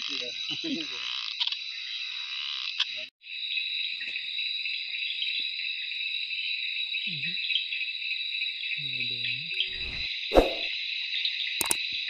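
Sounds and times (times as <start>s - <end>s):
frog croaking: 0.0s - 3.0s
insect chorus: 0.0s - 12.0s.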